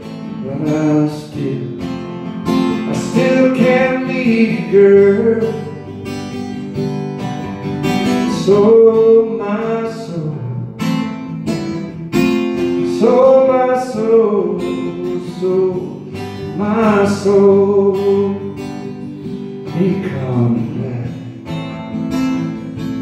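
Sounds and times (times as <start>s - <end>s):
man singing: 0.0s - 6.0s, 8.1s - 11.0s, 12.4s - 19.0s, 19.6s - 21.6s
acoustic guitar strumming: 0.0s - 23.0s.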